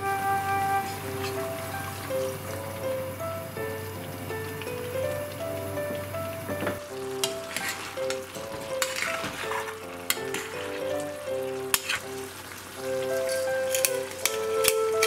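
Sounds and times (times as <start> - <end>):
stew sizzling in saucepan: 0.0 - 15.0
metal spoon scraping pan: 7.2 - 12.3, 13.2 - 14.8.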